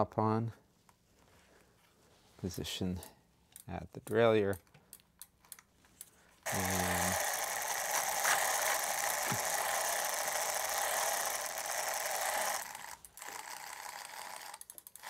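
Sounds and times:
chain cleaner brushes whirring: 6.5s - 15.0s.

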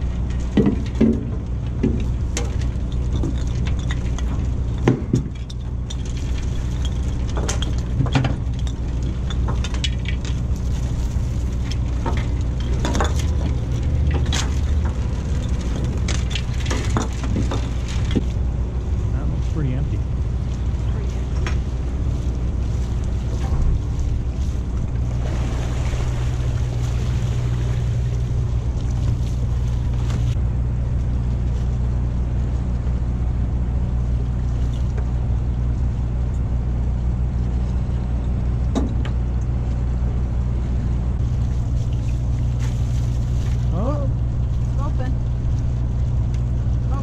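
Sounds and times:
boat engine droning: 0.0s - 47.0s
splashing or wind hiss: 25.2s - 28.7s.

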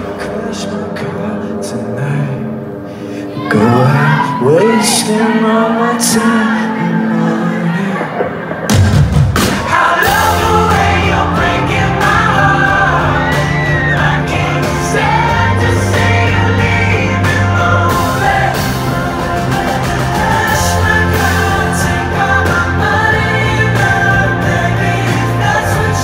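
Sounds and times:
man singing: 0.0s - 8.5s, 9.8s - 26.0s
drums: 7.4s - 26.0s
bass: 7.7s - 26.0s.

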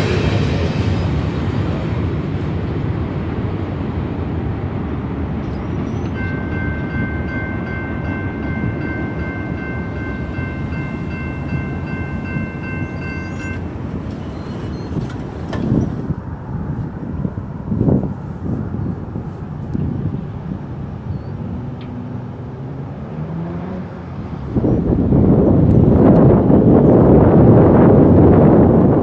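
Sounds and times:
wind on microphone: 0.0s - 23.0s, 23.7s - 29.0s
freight train rumbling: 0.0s - 29.0s
railroad crossing bell: 5.5s - 15.2s.

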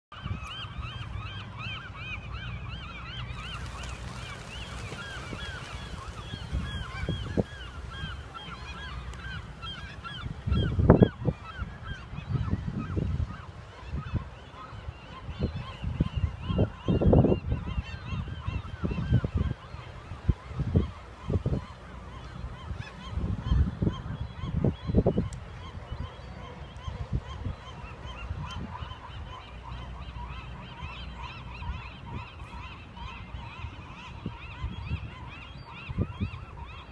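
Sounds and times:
flock of birds honking: 3.0s - 11.0s.

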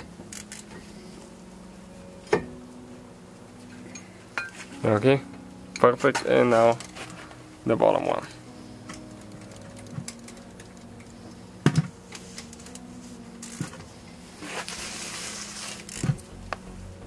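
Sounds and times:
ratchet wrench clicking: 0.3s - 0.6s, 13.4s - 13.6s, 15.9s - 16.2s.

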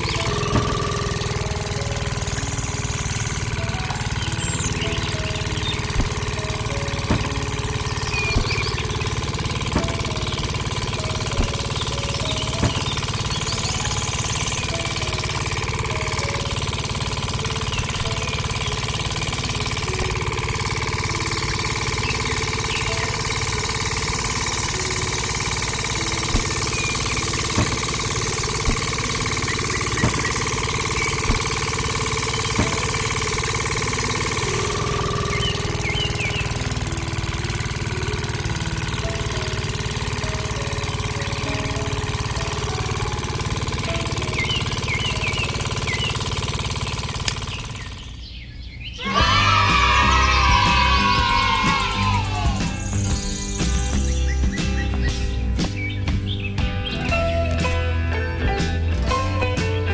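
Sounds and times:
sharp knocks: 0.0s - 43.0s
small engine idling: 0.0s - 59.9s.

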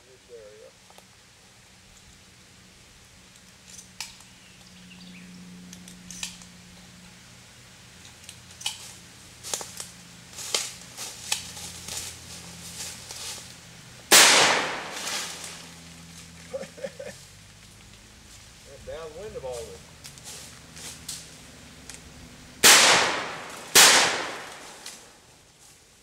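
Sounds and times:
shotgun blast: 14.1s - 15.5s, 22.6s - 25.1s.

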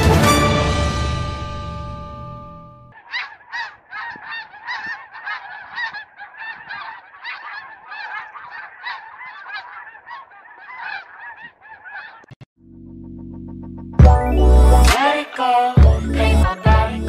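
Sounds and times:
geese honking in flight: 2.9s - 12.3s.

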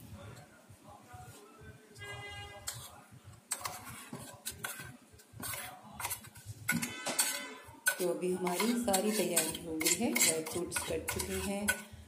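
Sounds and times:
spoon scraping metal jar: 2.6s - 12.0s.

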